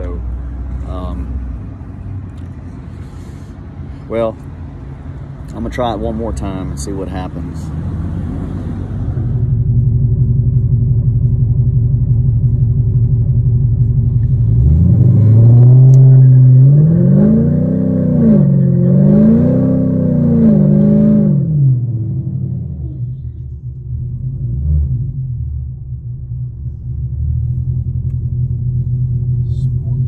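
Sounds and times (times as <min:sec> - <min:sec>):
engine idling and revving: 0:00.0 - 0:30.0.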